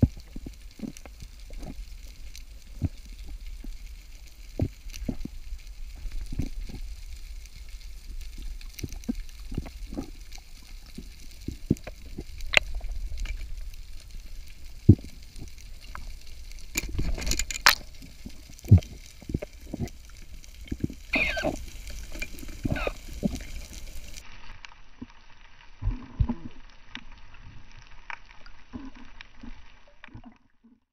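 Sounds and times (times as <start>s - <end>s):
underwater rumble of water: 0.0s - 30.9s
underwater clicks and knocks: 11.4s - 13.6s, 14.9s - 20.0s.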